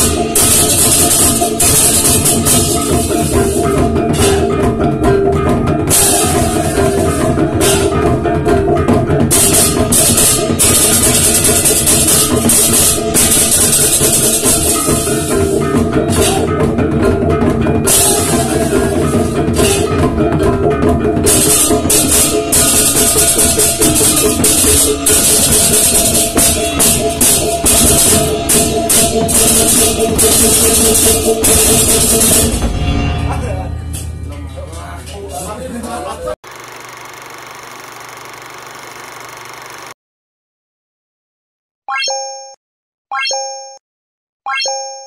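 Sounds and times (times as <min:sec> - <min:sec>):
cymbals crashing: 0:00.0 - 0:04.6, 0:05.9 - 0:08.0
drums beating: 0:00.0 - 0:36.6.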